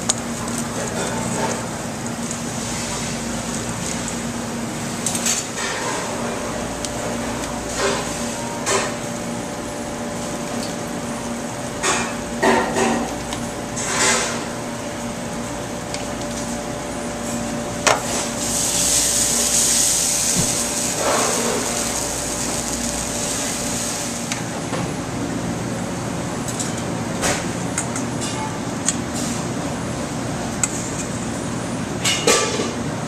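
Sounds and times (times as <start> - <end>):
steady mechanical hum: 0.0 - 33.0
loud hiss of pan flaring: 18.1 - 24.4
butter sizzling in a pan: 18.3 - 24.3.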